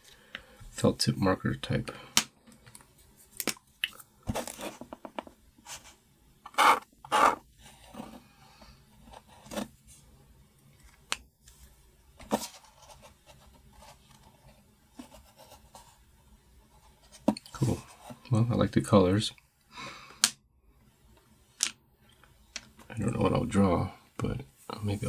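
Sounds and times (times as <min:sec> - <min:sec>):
marker pens scratching cardboard: 0:06.5 - 0:07.4.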